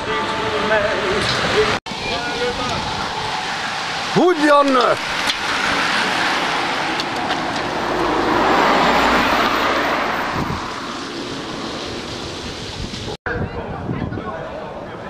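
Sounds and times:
vehicle passing by: 0:05.0 - 0:12.9.

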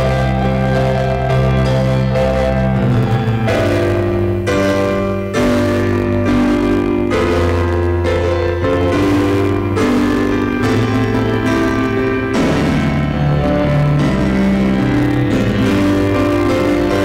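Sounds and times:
improvised piano chords: 0:00.0 - 0:17.0.

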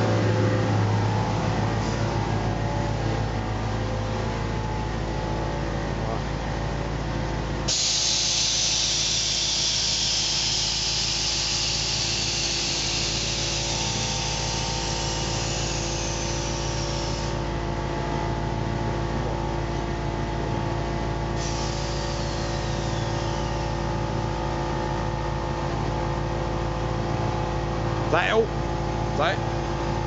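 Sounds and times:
steady engine hum: 0:00.0 - 0:30.0
air suspension hissing: 0:07.7 - 0:17.5, 0:21.4 - 0:24.2.

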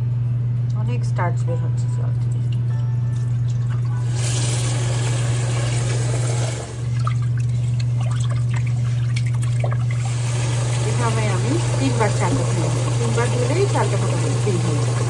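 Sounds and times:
steady low hum: 0:00.0 - 0:15.0
water pouring into steel sink: 0:03.2 - 0:15.0.

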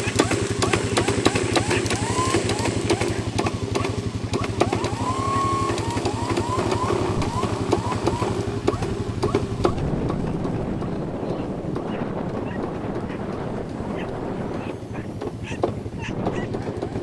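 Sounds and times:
small petrol engine running: 0:00.0 - 0:17.0
short high squeals: 0:04.4 - 0:09.4.

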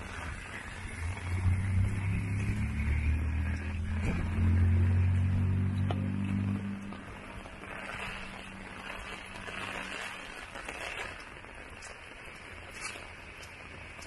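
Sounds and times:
vehicle engine hum: 0:00.0 - 0:10.6
heavy rain: 0:00.0 - 0:14.0.

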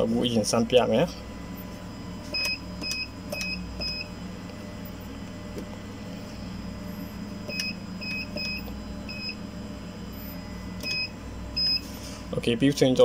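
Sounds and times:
low steady hum: 0:00.0 - 0:13.0
keypad beeps: 0:02.4 - 0:04.1, 0:07.5 - 0:09.4, 0:10.8 - 0:11.8.

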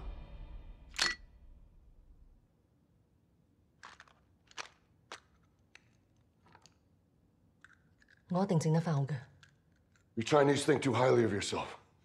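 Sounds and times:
small objects clicking on a table: 0:03.8 - 0:06.9, 0:07.6 - 0:08.3, 0:09.3 - 0:10.1.

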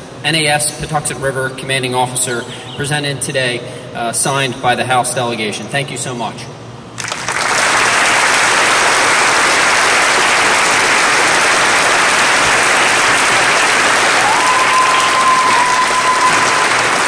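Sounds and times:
audience applauding: 0:07.0 - 0:17.0.

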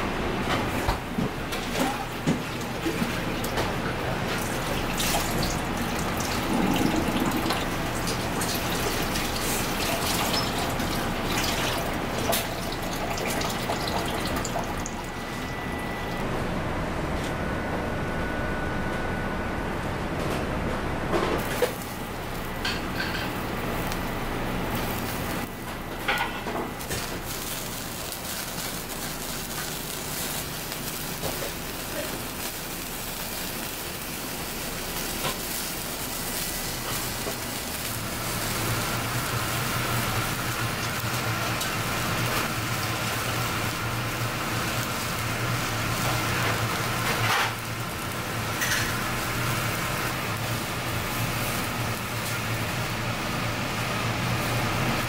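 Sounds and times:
shellfish sizzling on a grill: 0:01.7 - 0:14.5, 0:21.4 - 0:55.0
low steady hum: 0:14.4 - 0:30.1.

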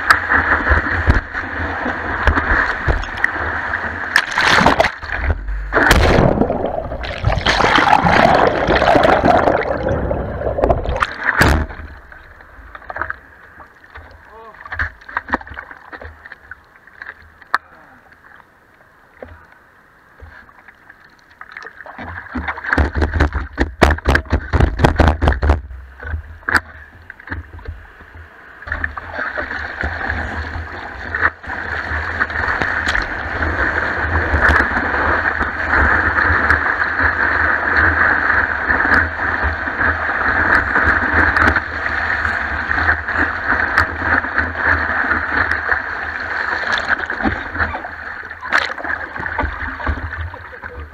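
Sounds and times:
whitewater rushing: 0:00.0 - 0:12.1
water splashing against surfboard: 0:00.0 - 0:18.4, 0:20.2 - 0:50.9.

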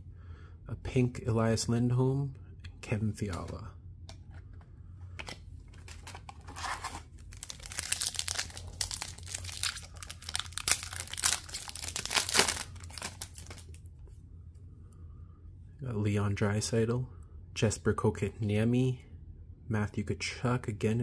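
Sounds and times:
foil wrapper crinkling and tearing: 0:05.8 - 0:13.8.

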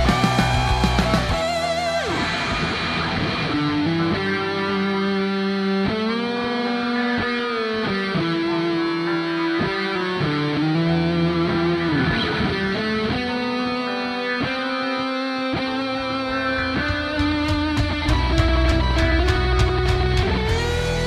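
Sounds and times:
electric guitar solo: 0:00.0 - 0:21.0
low accompaniment: 0:16.4 - 0:21.0.

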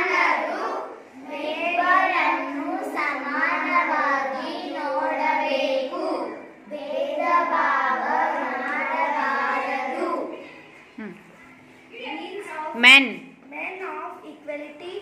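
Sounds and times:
girls singing together: 0:00.0 - 0:10.7.

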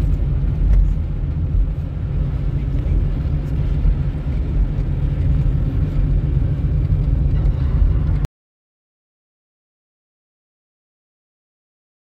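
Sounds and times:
car engine and road noise: 0:00.0 - 0:08.3.

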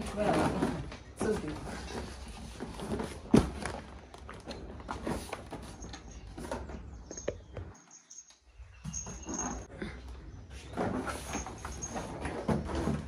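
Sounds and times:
cardboard rustling and scraping: 0:00.0 - 0:06.9.

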